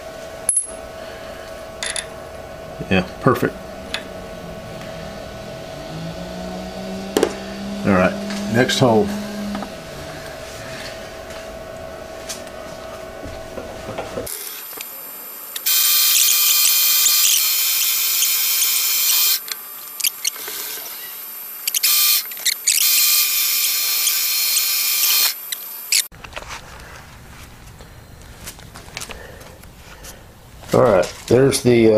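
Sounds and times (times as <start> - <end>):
milling machine humming: 0.1 - 26.1
metal cutting squeal: 15.6 - 26.1.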